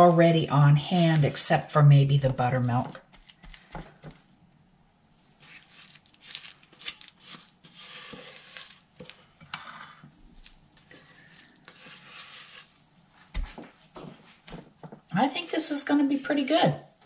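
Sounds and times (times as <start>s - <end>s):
spatula scraping mixing bowl: 5.3s - 13.6s.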